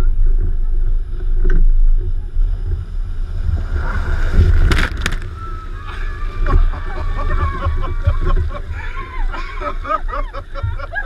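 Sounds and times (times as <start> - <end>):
wind rumble on microphone: 0.0 - 11.0
wave crashing and spraying: 2.4 - 11.0.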